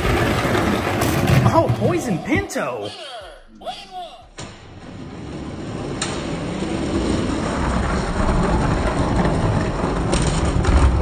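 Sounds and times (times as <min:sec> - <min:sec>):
toy trucks rolling on plastic track: 0:00.0 - 0:01.6, 0:04.9 - 0:11.0.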